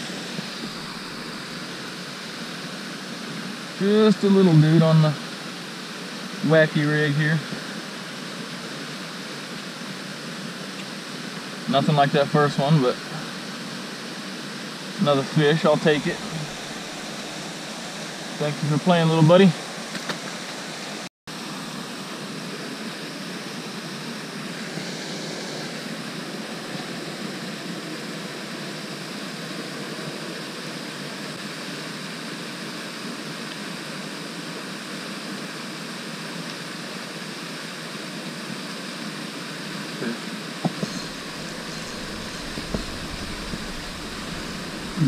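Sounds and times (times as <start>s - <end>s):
fountain water splashing: 41.1s - 45.0s.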